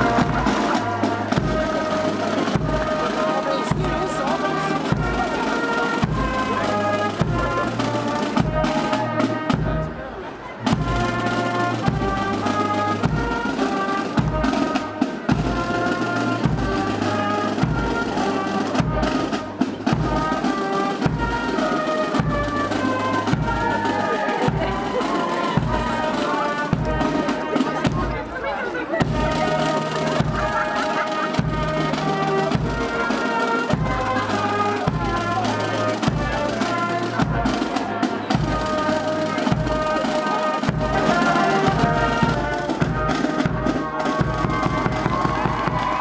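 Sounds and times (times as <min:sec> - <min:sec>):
bass drum beat: 0:00.0 - 0:07.7, 0:22.2 - 0:28.2, 0:40.7 - 0:46.0
brass and drum band playing: 0:00.0 - 0:46.0.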